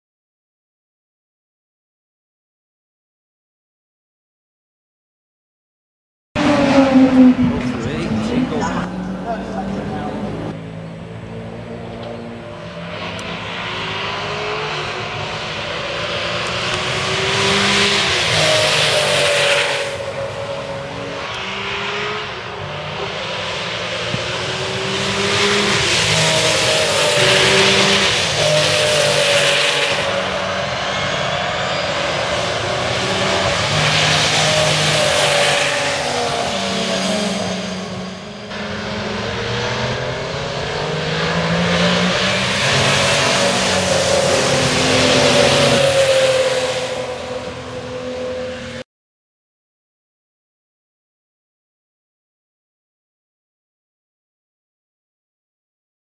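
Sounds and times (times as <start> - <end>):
racing car engine accelerating: 6.4 - 48.8.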